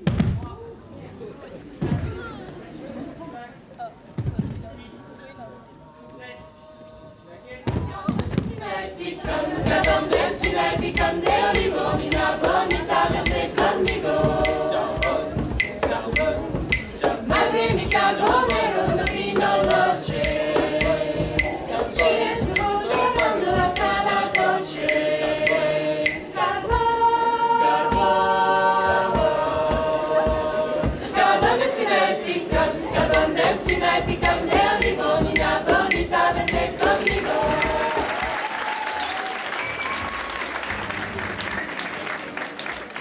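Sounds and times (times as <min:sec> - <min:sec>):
group singing a cappella: 0:05.7 - 0:38.9
steady percussive beat: 0:07.7 - 0:38.8.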